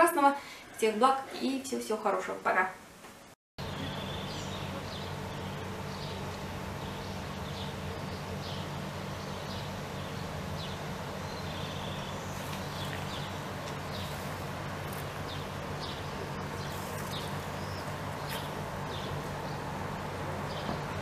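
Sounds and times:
small birds chirping: 3.6 - 19.8
steady low hum: 3.6 - 21.0.

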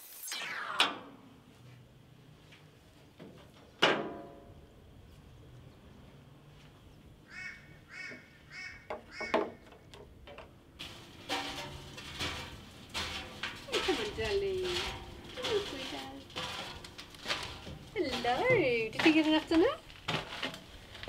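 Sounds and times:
harsh animal calls: 7.2 - 9.7
rustling: 10.8 - 21.0.

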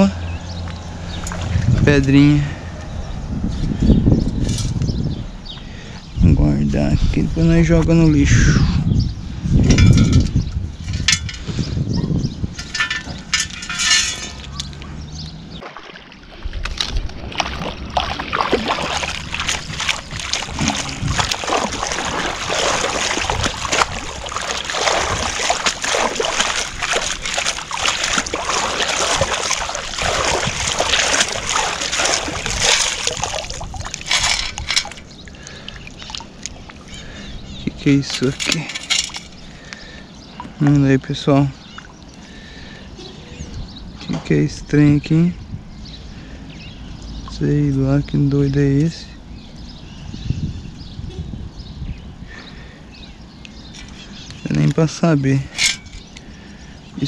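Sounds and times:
scoop rattling and scraping: 12.6 - 14.7, 18.8 - 35.2, 55.5 - 56.1
water sloshing and pouring: 15.6 - 37.1.

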